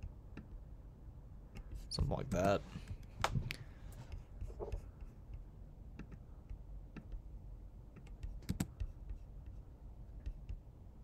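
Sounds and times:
low room hum: 0.0s - 11.0s
computer mouse clicks: 6.0s - 7.2s, 7.9s - 9.6s, 10.2s - 10.6s.

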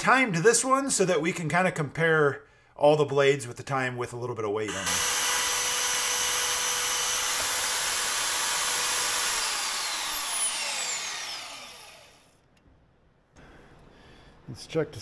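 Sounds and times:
band saw motor whining: 4.7s - 12.3s.

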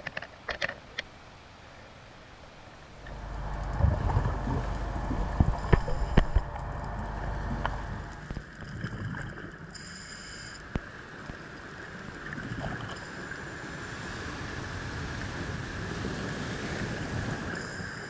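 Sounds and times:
underwater boat engine rumble: 3.0s - 9.8s.

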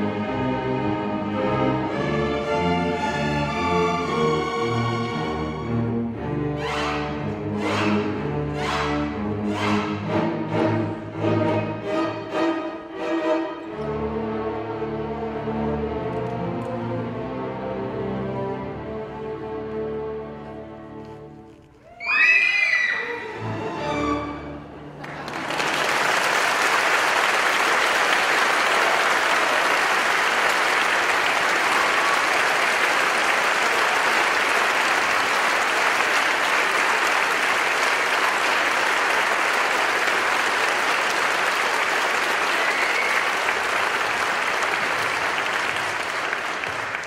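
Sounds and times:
audience applauding: 24.9s - 47.0s.

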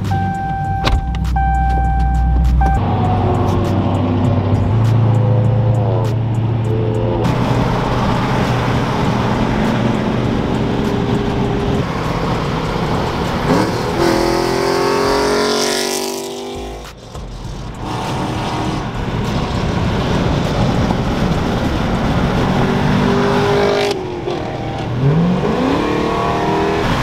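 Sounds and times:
car engine revving in cabin: 21.1s - 27.0s.

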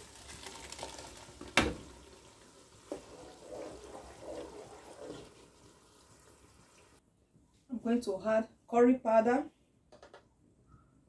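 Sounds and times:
wet sloshing and scraping: 2.9s - 5.4s.

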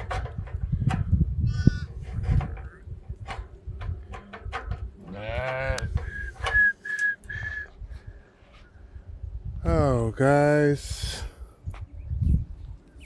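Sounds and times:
sheep bleating: 5.0s - 5.9s.

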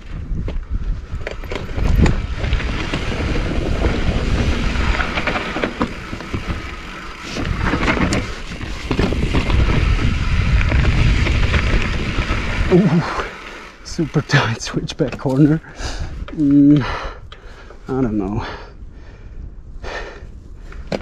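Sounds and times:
bike rattling: 0.0s - 19.3s
wind buffeting microphone: 0.0s - 21.0s
tyres crunching on gravel: 1.3s - 15.6s.

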